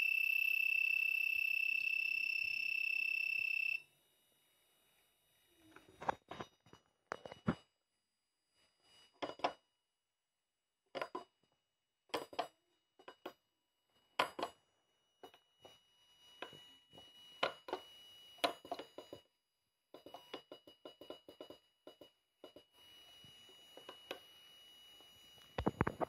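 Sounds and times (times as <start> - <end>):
high-pitched buzzer beep: 0.0 - 3.8.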